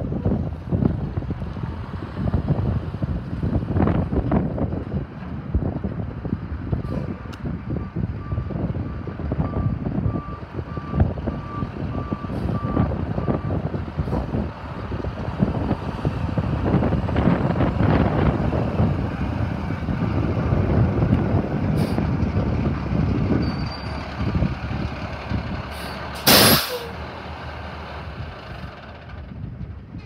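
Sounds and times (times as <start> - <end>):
diesel truck engine running: 0.0 - 30.0
air brakes hissing: 25.7 - 27.0.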